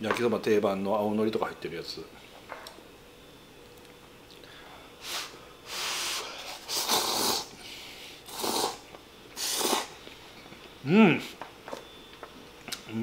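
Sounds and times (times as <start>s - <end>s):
man slurping noodles: 5.0s - 7.5s, 8.2s - 8.8s, 9.4s - 9.9s.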